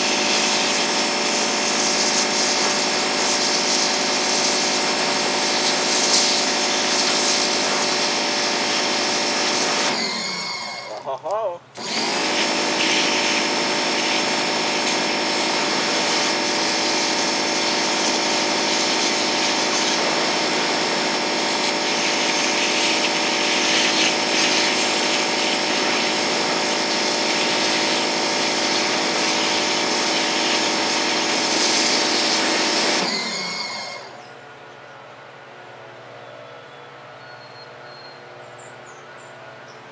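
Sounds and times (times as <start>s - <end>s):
pressure washer jet hissing: 0.0s - 11.0s, 11.8s - 34.2s
steady machine hum: 0.0s - 39.9s.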